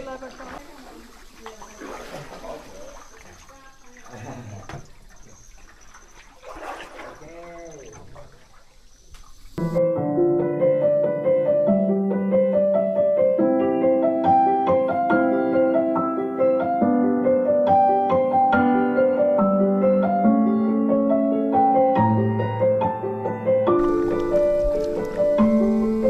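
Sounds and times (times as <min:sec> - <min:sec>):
piano music: 0:09.6 - 0:26.0.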